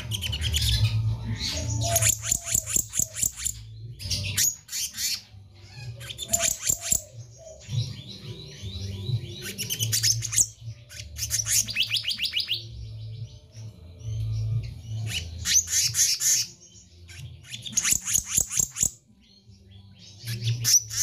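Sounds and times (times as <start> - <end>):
bird singing high notes: 0.0 - 8.2.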